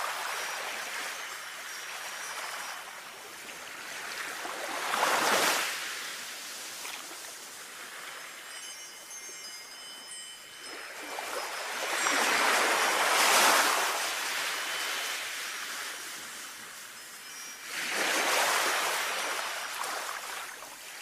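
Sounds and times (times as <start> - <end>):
sea waves washing on shore: 0.0 - 8.6, 10.6 - 21.0
wind chime ringing: 0.4 - 3.8, 8.0 - 20.6.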